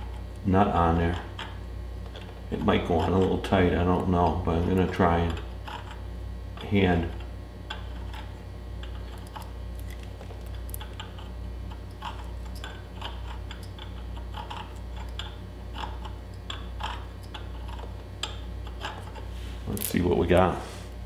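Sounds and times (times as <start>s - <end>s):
file scraping metal threads: 0.0s - 19.8s
steady low hum: 0.0s - 21.0s.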